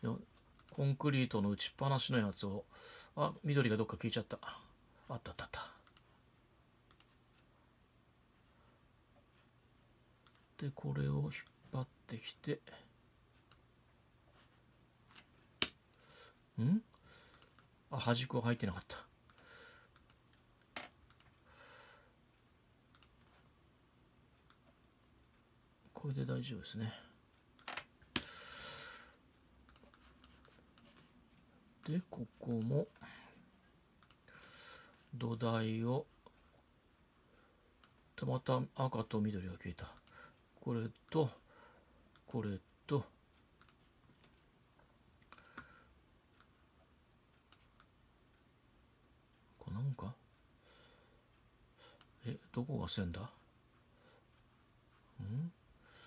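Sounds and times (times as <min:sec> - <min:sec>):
computer mouse clicks: 0:00.4 - 0:00.8, 0:05.8 - 0:06.1, 0:06.8 - 0:07.5, 0:15.1 - 0:15.8, 0:17.3 - 0:17.7, 0:19.2 - 0:21.4, 0:22.9 - 0:23.4, 0:27.6 - 0:28.4, 0:29.4 - 0:31.1, 0:31.8 - 0:32.9, 0:34.0 - 0:34.3, 0:40.0 - 0:40.2, 0:43.6 - 0:46.6
faint computer mouse clicks: 0:05.8 - 0:06.1, 0:06.9 - 0:07.5, 0:19.2 - 0:21.4, 0:40.0 - 0:40.2.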